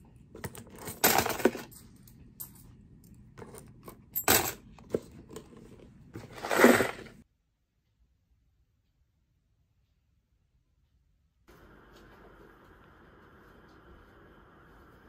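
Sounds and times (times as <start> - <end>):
coins clinking in cardboard box: 0.6 - 2.6, 3.4 - 4.6.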